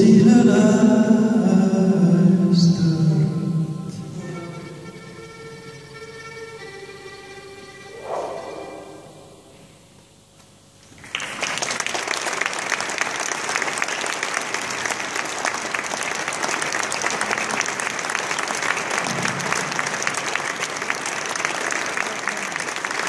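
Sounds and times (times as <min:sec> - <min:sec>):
crowd clapping: 0:11.0 - 0:23.0.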